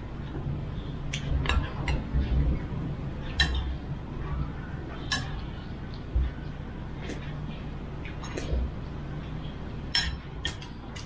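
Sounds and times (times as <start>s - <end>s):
dishes and utensils clinking: 1.3s - 2.3s, 3.3s - 3.8s, 5.0s - 5.5s, 9.9s - 11.0s.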